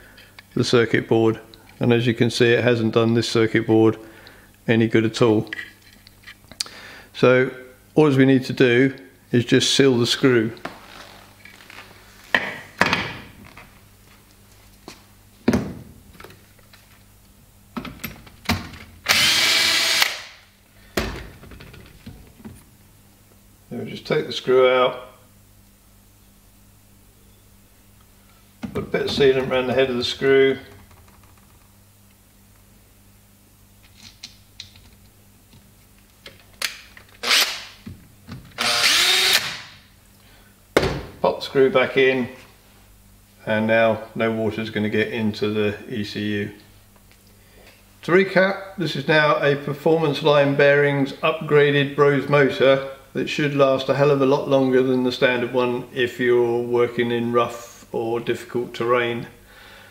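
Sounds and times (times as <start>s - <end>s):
cordless drill running: 19.1s - 20.4s, 37.2s - 37.6s, 38.6s - 39.7s.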